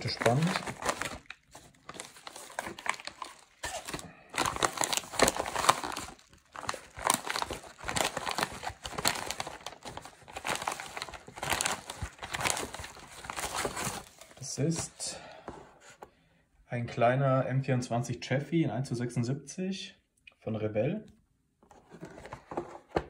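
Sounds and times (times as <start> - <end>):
paper envelope crinkling: 0.0 - 14.4.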